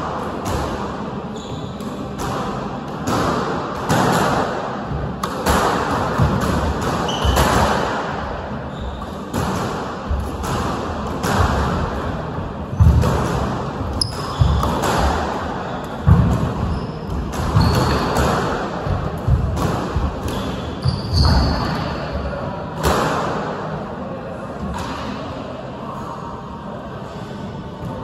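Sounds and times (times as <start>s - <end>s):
shoes squeaking on wooden floor: 20.8s - 21.5s.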